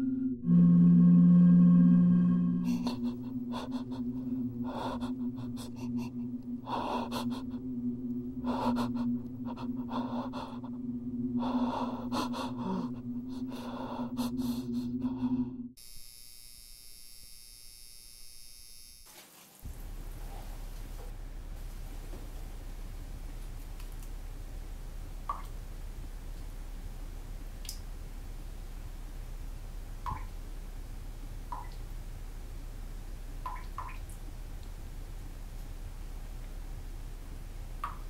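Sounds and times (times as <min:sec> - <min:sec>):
low hum: 0:00.0 - 0:15.8
person breathing heavily: 0:02.5 - 0:15.8.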